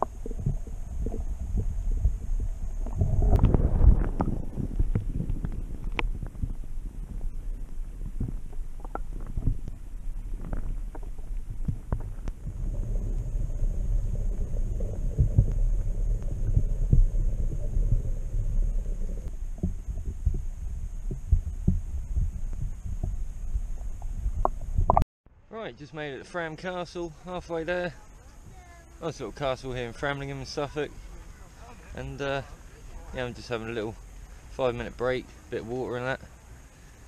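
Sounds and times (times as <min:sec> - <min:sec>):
wind buffeting microphone: 0:00.0 - 0:25.0
road rumble: 0:00.0 - 0:25.5, 0:26.1 - 0:37.0
knocks and thumps: 0:19.6 - 0:25.0.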